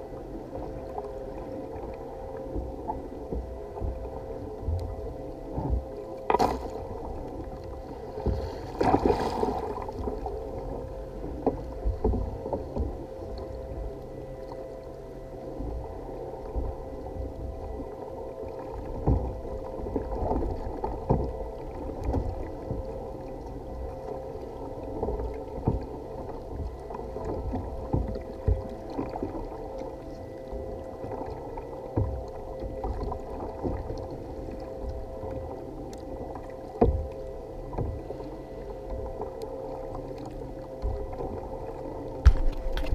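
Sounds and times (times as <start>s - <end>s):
water slapping against kayak hull: 5.6s - 6.9s, 8.2s - 10.3s, 42.2s - 42.9s
fish splashing at surface: 42.2s - 42.9s
knocks and thumps on kayak: 42.2s - 42.9s.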